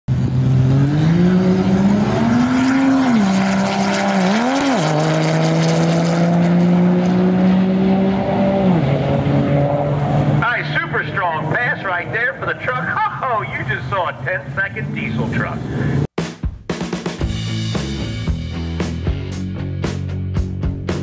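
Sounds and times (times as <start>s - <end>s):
pickup truck accelerating hard: 0.1s - 12.3s.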